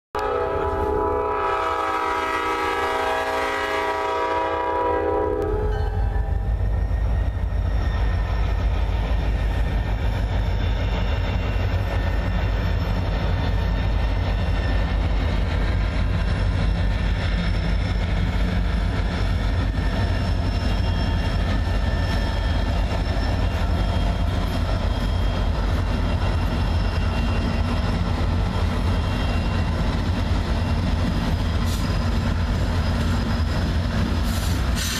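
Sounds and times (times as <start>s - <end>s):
locomotive air horn: 0.2s - 6.2s
diesel locomotive engines rumbling: 0.2s - 34.9s.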